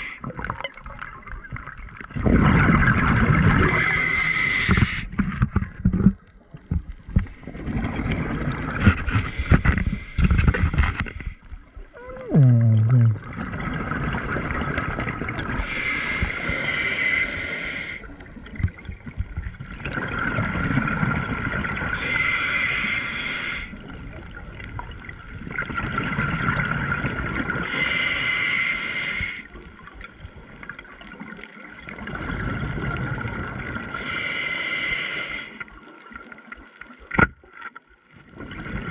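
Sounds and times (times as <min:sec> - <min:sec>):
exhaled bubbles bursting: 0:00.2 - 0:03.9, 0:11.9 - 0:15.6, 0:18.2 - 0:22.0, 0:24.1 - 0:27.6
diver breathing through regulator: 0:03.7 - 0:05.2, 0:15.6 - 0:18.1, 0:22.0 - 0:23.8, 0:27.6 - 0:29.5, 0:34.0 - 0:35.7.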